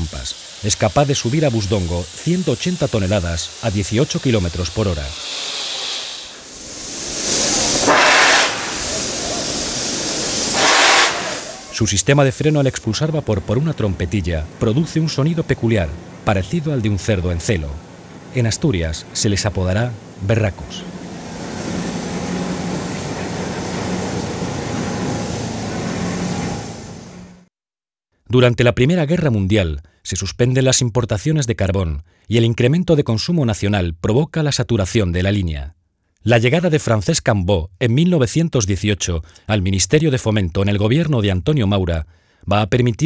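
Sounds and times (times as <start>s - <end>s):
steam locomotive hissing: 0.0s - 27.5s
steady low drone: 6.2s - 27.4s.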